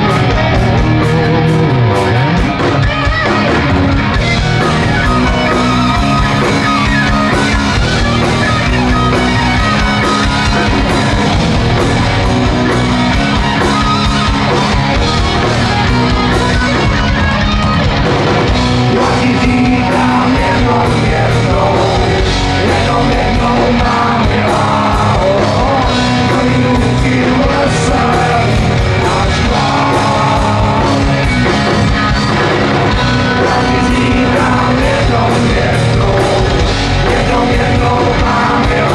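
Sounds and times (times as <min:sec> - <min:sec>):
drum kit: 0:00.0 - 0:38.9
electric guitars: 0:00.0 - 0:38.9
person singing: 0:18.8 - 0:31.2, 0:33.1 - 0:38.9.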